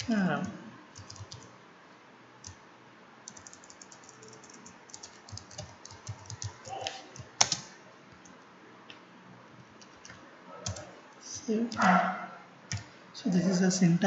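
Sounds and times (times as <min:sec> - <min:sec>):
computer keyboard clicking: 0:01.0 - 0:01.5, 0:03.3 - 0:08.4, 0:09.8 - 0:10.9, 0:12.7 - 0:12.9.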